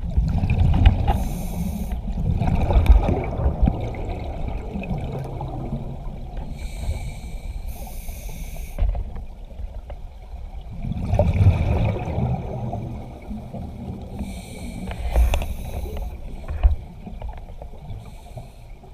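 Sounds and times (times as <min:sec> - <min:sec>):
exhaled bubbles rushing: 0:00.0 - 0:01.2, 0:02.0 - 0:06.4, 0:10.7 - 0:14.2
hissing inhale through regulator: 0:01.0 - 0:02.0, 0:06.4 - 0:08.9, 0:14.0 - 0:17.0, 0:17.8 - 0:18.9.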